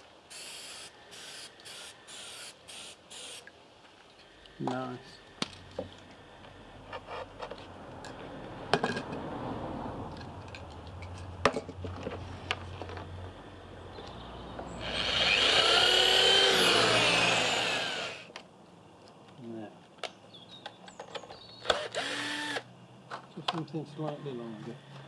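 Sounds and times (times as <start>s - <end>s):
electric drill boring into wood: 14.8s - 18.3s, 21.7s - 22.6s.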